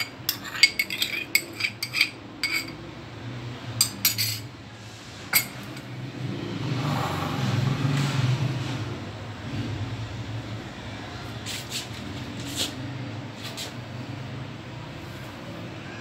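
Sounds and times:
metal spoon clinking on bowl: 0.0s - 2.8s, 3.8s - 4.5s, 5.3s - 5.9s.

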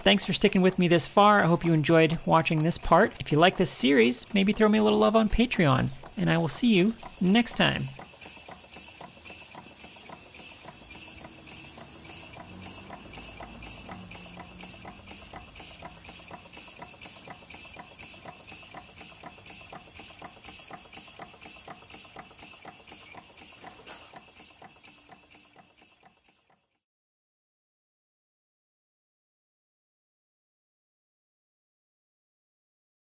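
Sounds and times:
model steam engine chuffing: 0.0s - 26.8s.

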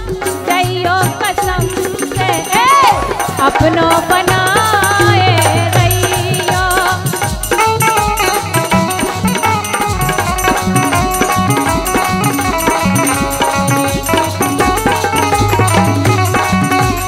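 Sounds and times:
steady drum beat: 0.0s - 17.0s
folk instrumental melody: 7.6s - 17.0s.

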